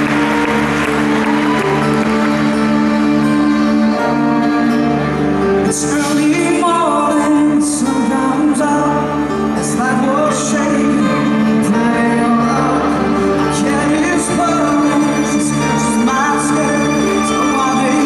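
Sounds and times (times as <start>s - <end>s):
rock band with strings: 0.0s - 18.0s
man singing: 5.6s - 18.0s.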